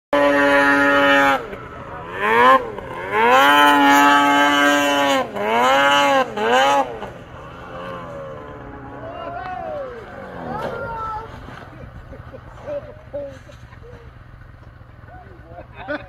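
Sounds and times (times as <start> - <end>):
snowmobile engine revving: 0.1 - 16.0.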